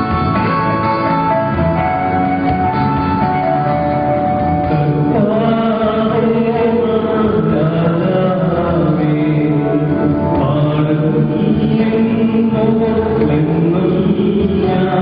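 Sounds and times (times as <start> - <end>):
held instrumental notes: 0.0 - 15.0
person singing a chant: 4.7 - 15.0.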